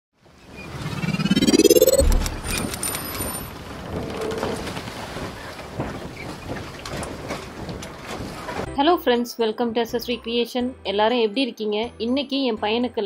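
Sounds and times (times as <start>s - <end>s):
rising sweep: 0.6s - 3.0s
low boom: 1.0s - 2.8s
glittering sparkles and ringing tones: 1.2s - 2.4s.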